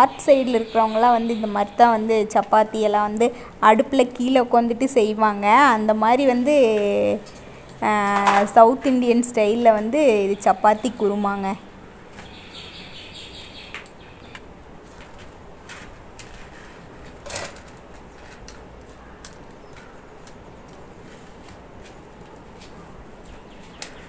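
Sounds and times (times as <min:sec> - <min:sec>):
wood fire crackling: 0:00.0 - 0:07.0, 0:13.4 - 0:24.0.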